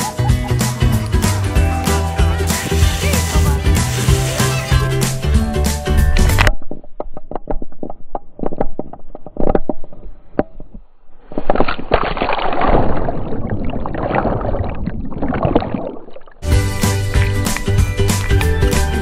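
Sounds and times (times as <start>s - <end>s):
water slapping and sloshing: 2.5s - 5.2s, 11.6s - 19.0s
churning bubbling water underwater: 11.9s - 16.4s.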